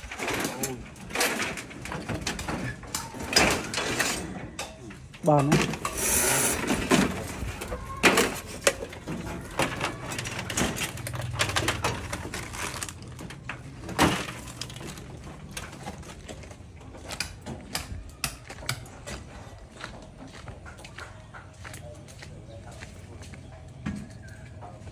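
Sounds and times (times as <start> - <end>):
scrap metal and wood clattering: 0.0 - 17.8.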